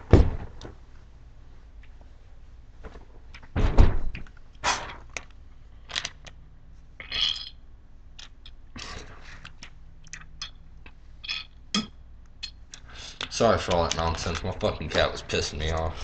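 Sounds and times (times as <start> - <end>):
loud bump: 0.0 - 0.6, 3.6 - 4.9
hissy spitting bursts: 4.6 - 5.0.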